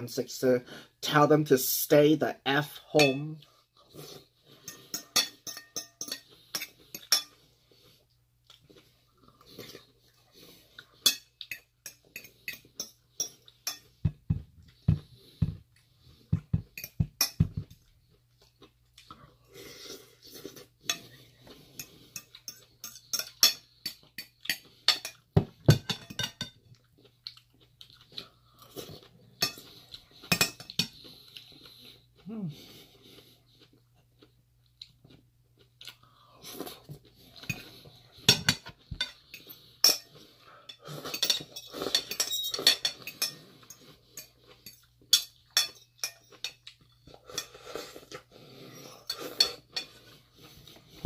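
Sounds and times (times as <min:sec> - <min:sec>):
chewing and crunching: 0:06.2 - 0:14.0, 0:26.6 - 0:51.0.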